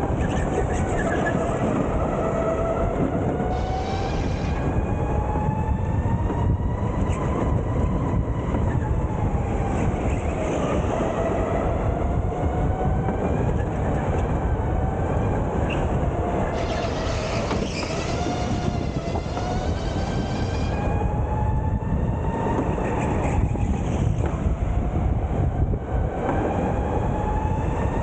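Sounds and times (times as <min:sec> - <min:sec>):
tyres rumbling on track: 0:00.0 - 0:28.0.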